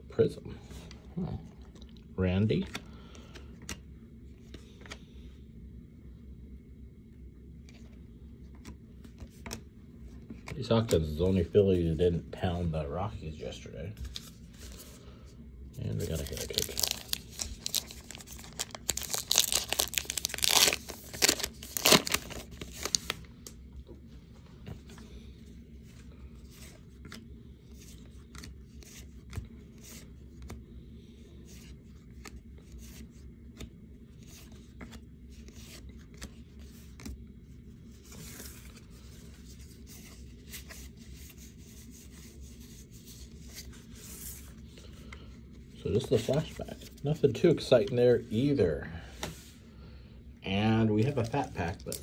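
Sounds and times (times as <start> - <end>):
trading cards being flipped: 15.9 - 23.6
plastic wrapper tearing and crinkling: 16.0 - 23.2, 51.8 - 52.0.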